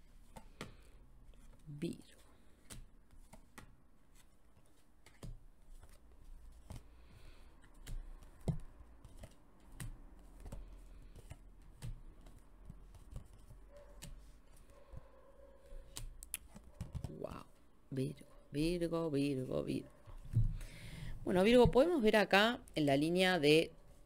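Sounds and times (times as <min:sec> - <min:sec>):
cards tapping and sliding on table: 0:02.6 - 0:14.3.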